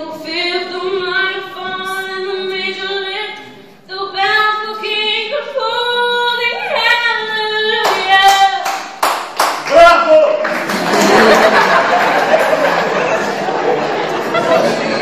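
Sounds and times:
woman singing unaccompanied: 0.0s - 8.7s
applause: 7.8s - 12.9s.

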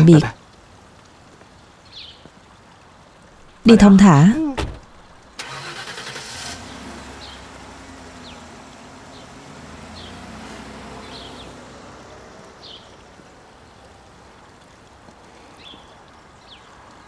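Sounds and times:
faint outdoor hiss: 0.0s - 17.0s
van engine running low: 5.4s - 13.2s.

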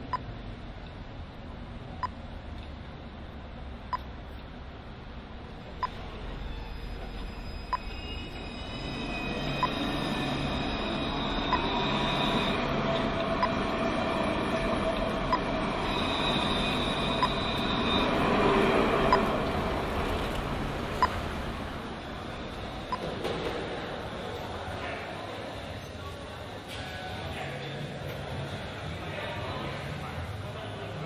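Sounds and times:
tram passing on rails: 0.0s - 25.8s
tram wheels squealing: 5.6s - 24.8s.

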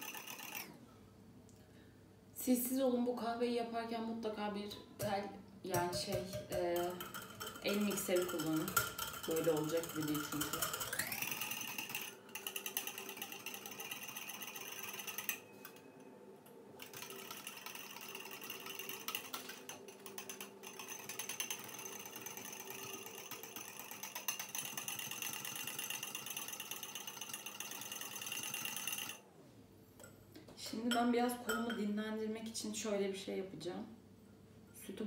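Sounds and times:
fork whisking in ceramic bowl: 5.8s - 15.4s.

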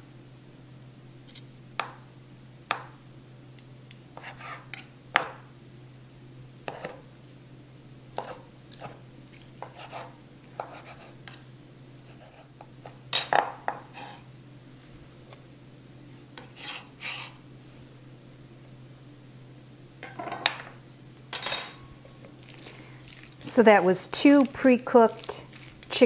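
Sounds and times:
knife chopping on wooden board: 9.6s - 11.0s.

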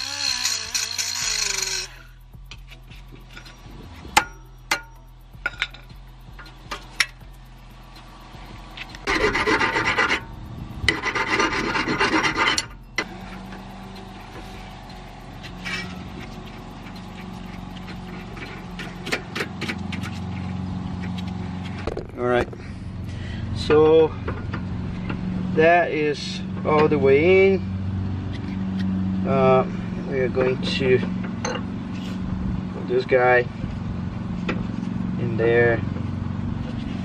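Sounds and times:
harsh rasping of hand tool: 0.0s - 3.0s, 9.0s - 12.8s
metal clicks: 0.0s - 11.2s.

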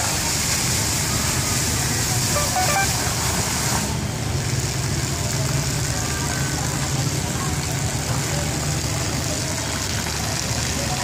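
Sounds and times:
faint voices: 0.0s - 3.7s
fountain jets hissing: 0.0s - 11.0s.

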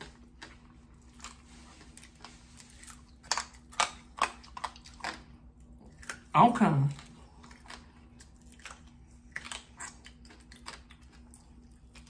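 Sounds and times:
crunching fried fish: 6.9s - 12.0s.

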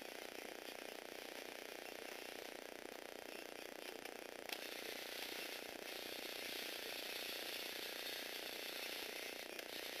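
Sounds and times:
whir of meshing plastic gears: 3.2s - 10.0s.

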